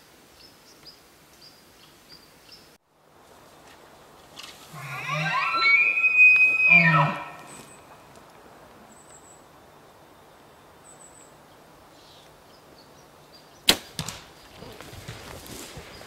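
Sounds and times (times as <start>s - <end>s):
bow snapping: 13.7s - 14.3s
elk hoofbeats and crashing: 13.9s - 16.0s.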